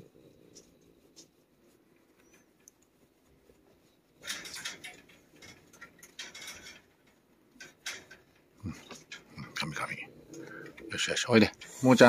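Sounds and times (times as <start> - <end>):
faint clicks: 2.0 - 3.6.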